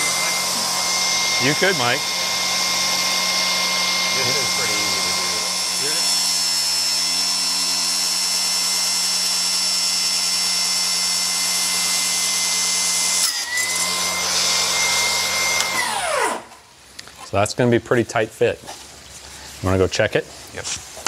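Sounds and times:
table saw whining: 0:00.0 - 0:16.6.

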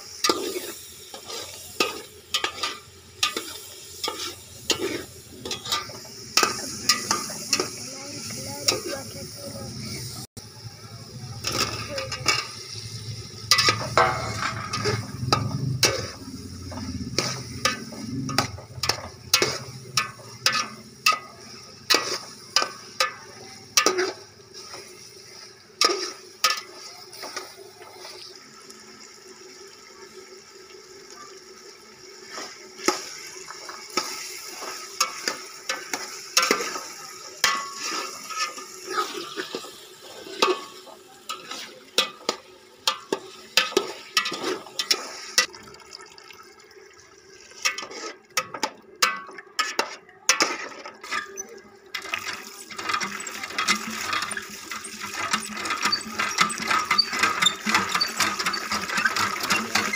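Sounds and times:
metal ladle scraping steel pot: 0:00.2 - 0:07.7, 0:13.4 - 0:23.2, 0:47.6 - 0:59.9
water running into plastic tub: 0:36.3 - 0:49.6, 0:50.4 - 0:59.9
washing grain by hand: 0:47.1 - 0:59.9.

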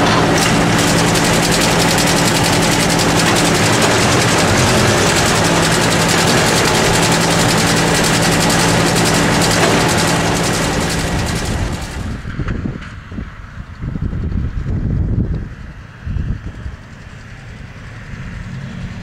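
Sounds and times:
forage harvester machinery drone: 0:00.0 - 0:19.0.

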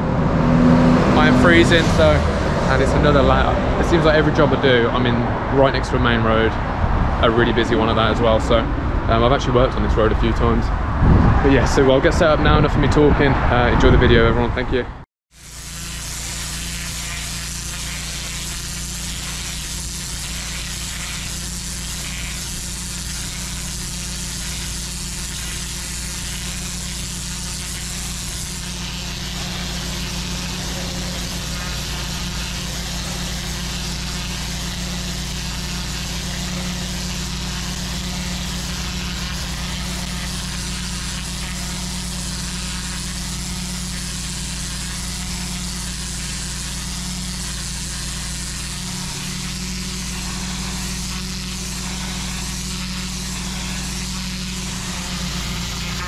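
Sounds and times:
engine humming: 0:00.0 - 0:15.0, 0:26.4 - 0:45.6
high-pressure water hissing on bricks: 0:15.3 - 0:56.0.

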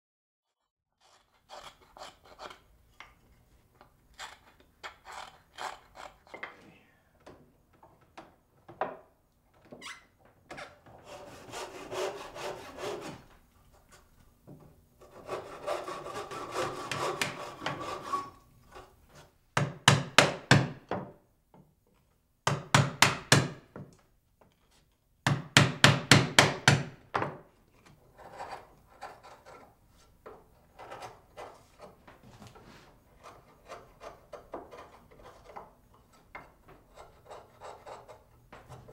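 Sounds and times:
hand saw cutting wood: 0:00.6 - 0:02.6, 0:04.1 - 0:06.4, 0:11.0 - 0:13.3, 0:15.0 - 0:19.4, 0:33.1 - 0:38.9
marking gauge scraping wood: 0:01.0 - 0:02.6, 0:04.1 - 0:06.4, 0:10.5 - 0:13.3, 0:15.0 - 0:19.4, 0:28.1 - 0:32.0, 0:32.8 - 0:38.9.

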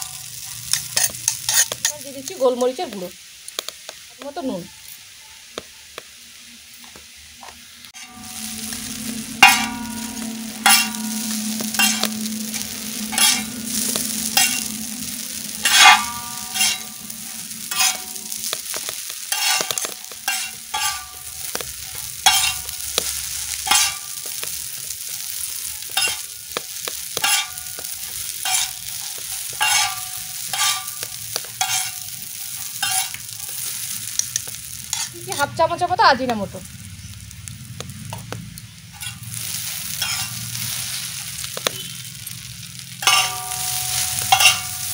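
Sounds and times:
metal spatula striking and scraping pan: 0:00.0 - 0:02.1, 0:08.0 - 0:35.5, 0:38.9 - 0:41.9, 0:42.7 - 0:44.9
noodles sizzling on a pan: 0:00.0 - 0:44.9
low hum: 0:08.0 - 0:19.0.

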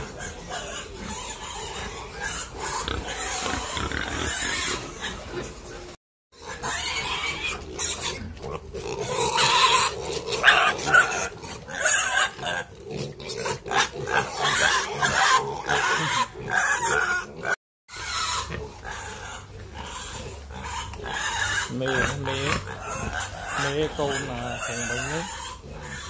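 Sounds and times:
pigs grunting: 0:00.0 - 0:26.0.

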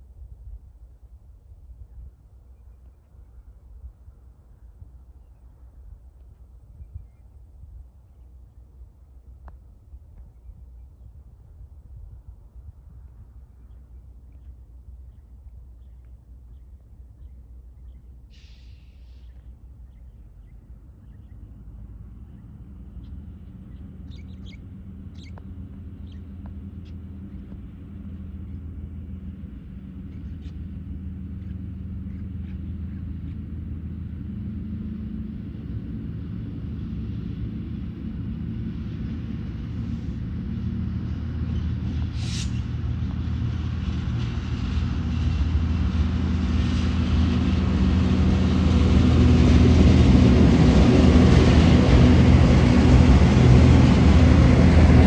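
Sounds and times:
locomotive engines rumbling: 0:18.3 - 0:55.0.

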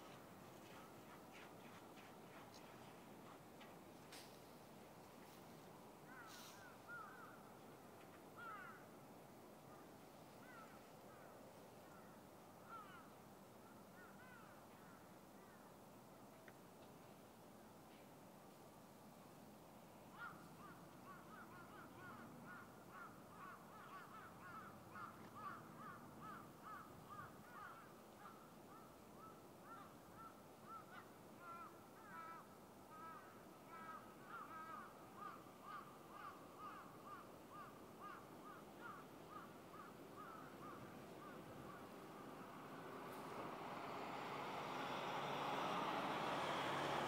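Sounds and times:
faint animal calls: 0:06.1 - 0:07.4.

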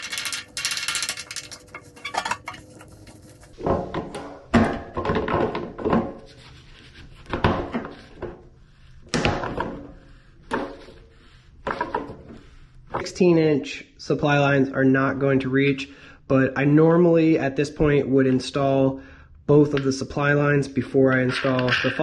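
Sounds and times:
metal scraping in steel sink: 0:00.0 - 0:04.2
metal clanks in steel sink: 0:00.1 - 0:02.6.

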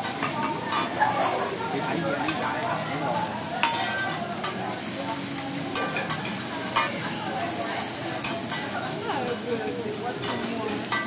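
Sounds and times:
spatula clacking on metal: 0:00.0 - 0:01.1, 0:02.2 - 0:02.4, 0:03.6 - 0:04.6, 0:05.7 - 0:07.1, 0:08.2 - 0:09.5, 0:10.2 - 0:11.0
vegetables sizzling on a griddle: 0:00.0 - 0:11.0
metal spatula scraping: 0:00.2 - 0:01.1, 0:03.6 - 0:04.6.

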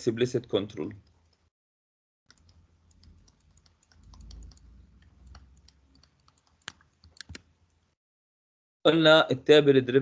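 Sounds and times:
stylus tapping on tablet screen: 0:02.3 - 0:07.5.

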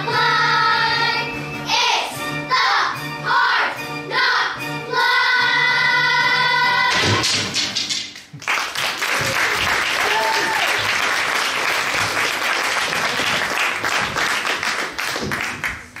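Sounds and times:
audience applauding: 0:08.2 - 0:16.0.

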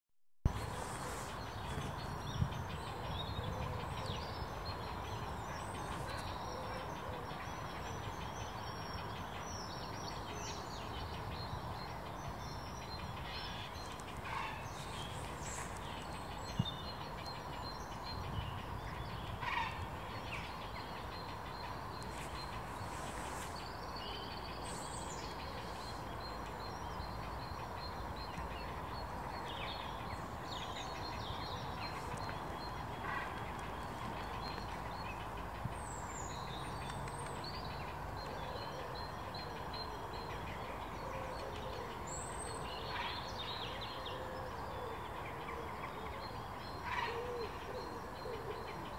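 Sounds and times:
birds calling: 0:12.6 - 0:18.0.

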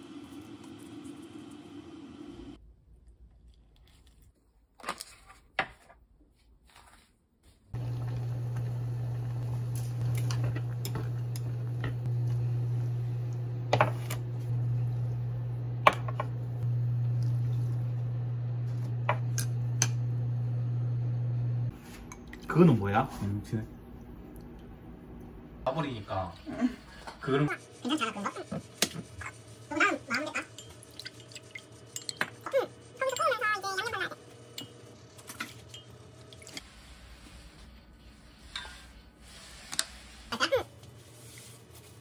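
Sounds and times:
water bubbling in pot: 0:07.8 - 0:12.2
low hum: 0:07.8 - 0:22.5
glass and chopsticks clinking on pot: 0:30.5 - 0:32.4.

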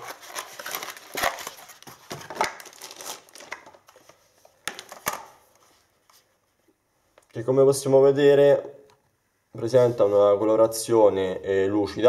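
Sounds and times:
cardboard packaging rustling: 0:00.0 - 0:06.4.

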